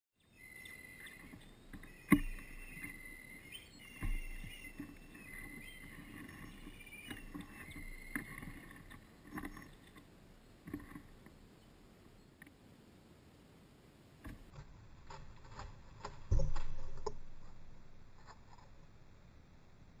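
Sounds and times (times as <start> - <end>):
rustling of sticks and grass: 0.3 - 11.8.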